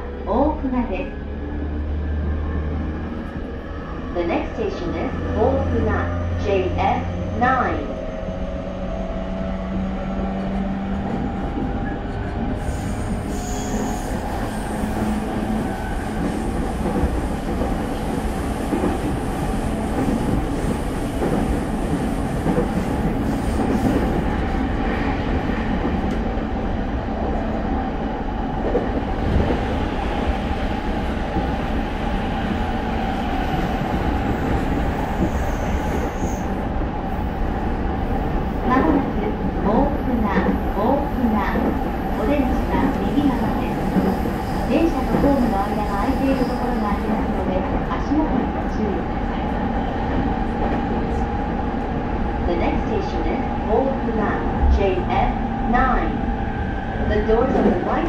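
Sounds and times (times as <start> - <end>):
train wheels rumbling on rails: 1.1 - 58.0.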